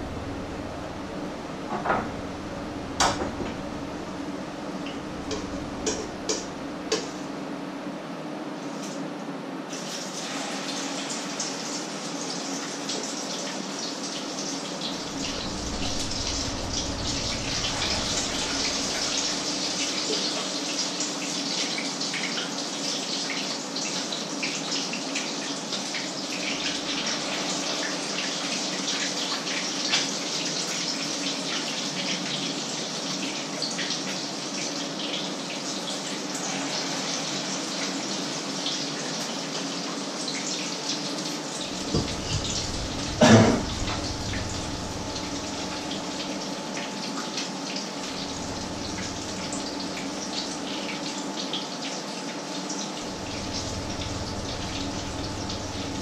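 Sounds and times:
low steady hum: 0:00.0 - 0:07.5, 0:15.0 - 0:20.0, 0:41.6 - 0:46.9, 0:47.9 - 0:51.2, 0:53.0 - 0:56.0.

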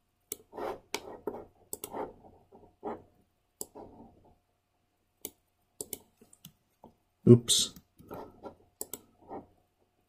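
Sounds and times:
computer mouse clicks: 0:00.3 - 0:02.1, 0:03.6 - 0:03.9, 0:05.2 - 0:06.6, 0:08.8 - 0:09.1
mouse sliding across desk: 0:00.4 - 0:04.3, 0:08.0 - 0:08.6.

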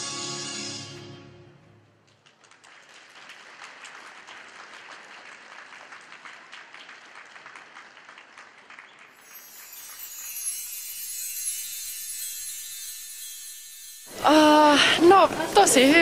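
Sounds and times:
audience applauding: 0:02.0 - 0:11.1.

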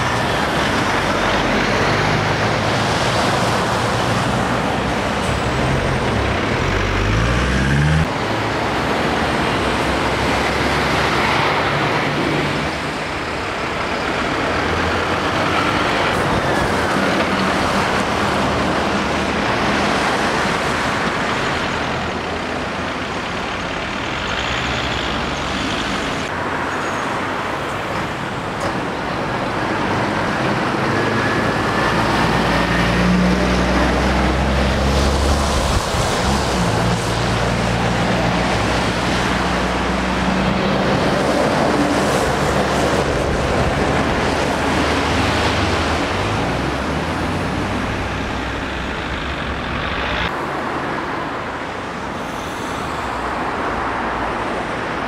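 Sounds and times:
lorry diesel engine droning: 0:00.0 - 0:20.2
tyre and traffic noise: 0:00.0 - 0:55.0.

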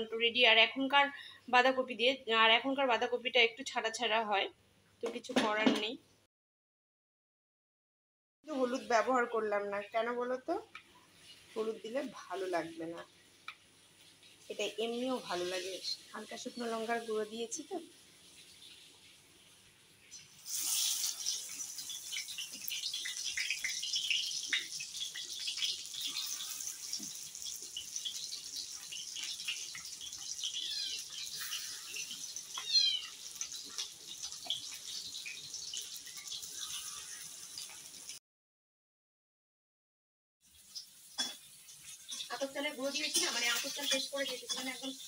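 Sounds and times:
fritters sizzling in hot oil: 0:08.5 - 0:38.2, 0:40.4 - 0:45.0.

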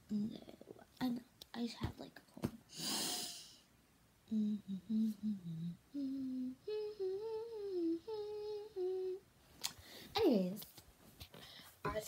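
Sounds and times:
girl humming: 0:00.0 - 0:00.8, 0:04.3 - 0:09.3.

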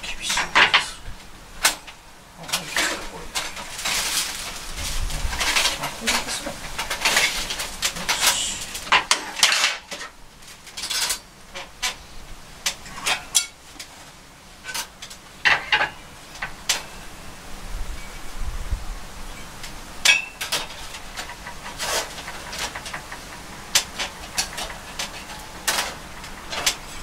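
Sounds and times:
metal parts clinking and rattling: 0:01.6 - 0:12.0, 0:20.0 - 0:27.0.

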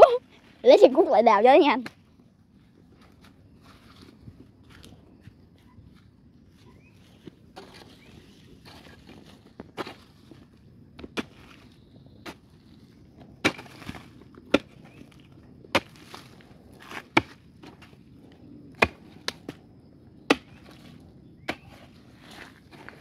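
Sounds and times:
hoe chopping into hard earth: 0:13.4 - 0:15.0, 0:15.7 - 0:18.0, 0:18.8 - 0:19.6, 0:20.3 - 0:23.0.

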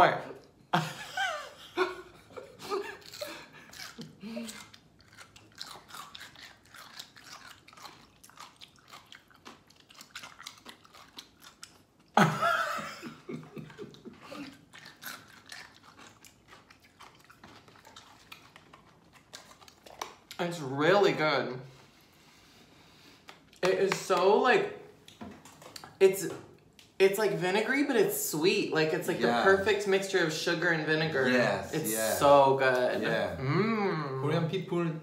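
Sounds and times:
crunchy chewing: 0:02.8 - 0:12.2, 0:13.5 - 0:20.4.

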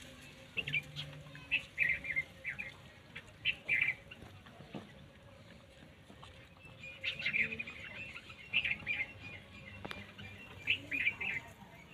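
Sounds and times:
small birds chirping: 0:00.0 - 0:11.9.

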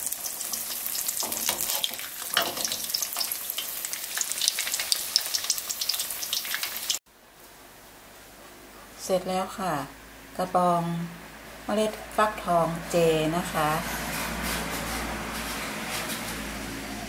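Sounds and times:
food frying in hot oil: 0:00.0 - 0:07.0.

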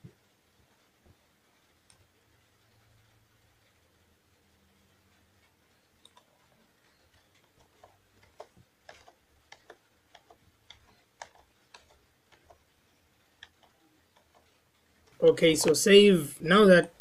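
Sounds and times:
mouse and keyboard clicks: 0:06.0 - 0:12.7, 0:13.3 - 0:15.8.

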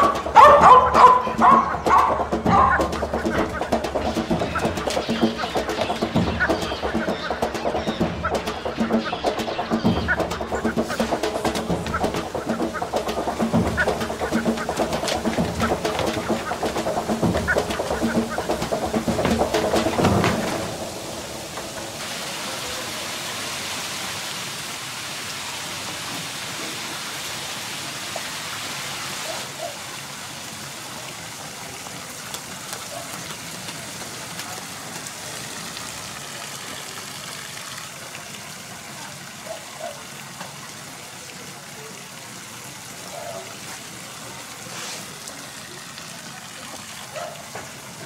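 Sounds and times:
steady hissing noise: 0:10.3 - 0:32.6.

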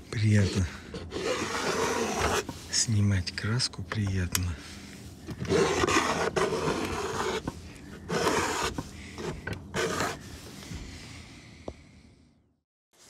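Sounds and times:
palette knife scraping paint: 0:00.2 - 0:02.7, 0:05.3 - 0:10.5.

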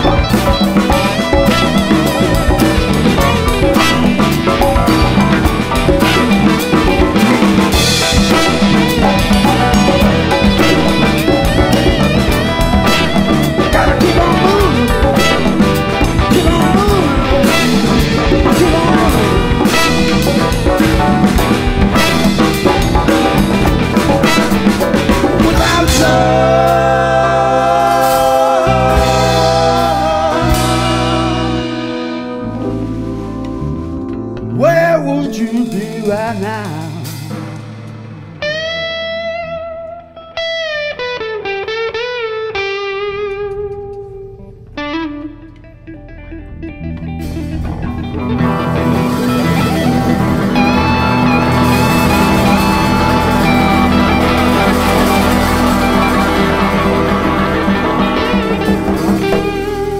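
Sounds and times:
saxophone: 0:00.0 - 0:34.5, 0:47.5 - 0:59.9
trumpet: 0:00.0 - 0:36.8, 0:48.4 - 0:59.9
drum kit beat: 0:00.0 - 0:39.5, 0:46.9 - 0:59.9
bass guitar: 0:00.0 - 0:59.9
electric guitar: 0:00.0 - 0:59.9
live rock band playing: 0:00.0 - 0:59.9
men singing harmony: 0:13.6 - 0:15.3, 0:16.1 - 0:20.2, 0:25.3 - 0:32.2.

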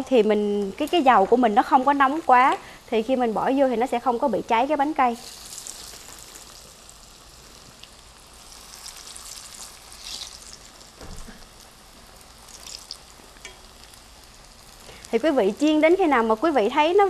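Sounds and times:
oil sizzling and crackling: 0:00.1 - 0:17.0
soft thump: 0:11.0 - 0:11.4.

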